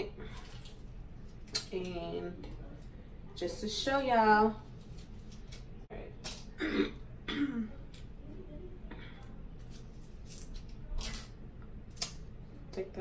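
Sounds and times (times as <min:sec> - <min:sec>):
woman coughing: 0:06.6 - 0:07.8.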